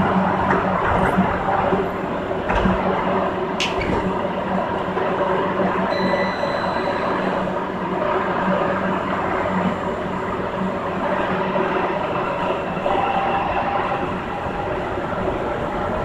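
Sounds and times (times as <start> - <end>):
train running rumble: 0.0 - 16.0
thin high tone: 5.9 - 7.5.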